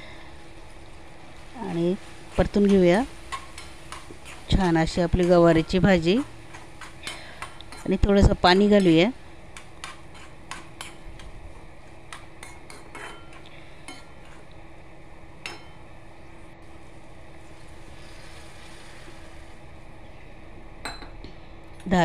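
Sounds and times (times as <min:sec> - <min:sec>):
faint hum: 0:00.0 - 0:22.0.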